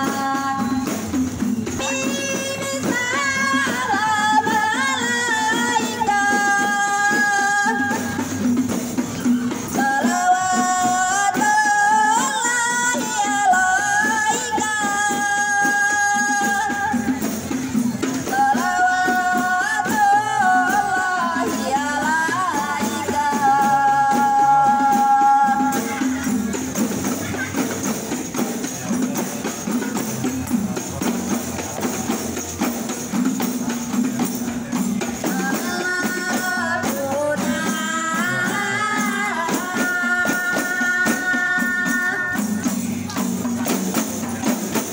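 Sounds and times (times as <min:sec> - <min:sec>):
frame drums beat: 0:00.0 - 0:44.9.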